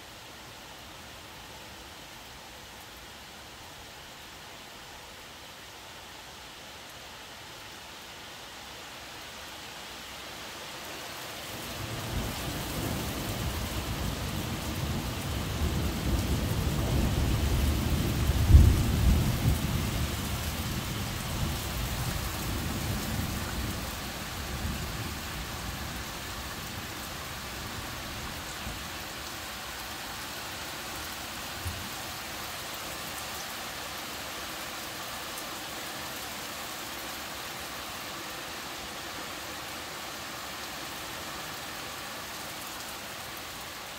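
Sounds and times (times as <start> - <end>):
rain falling on foliage: 0.0 - 43.9.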